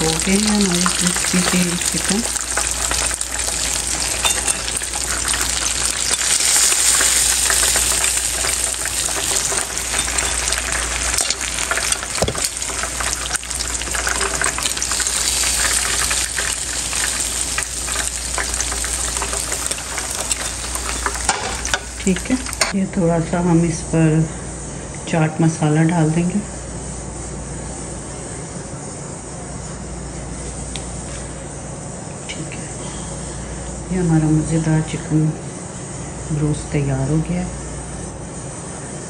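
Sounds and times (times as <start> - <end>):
chicken sizzling in hot oil: 0.0 - 22.8.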